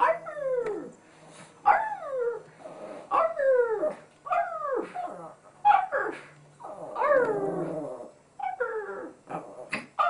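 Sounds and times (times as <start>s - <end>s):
small dog howling: 3.1s - 9.2s.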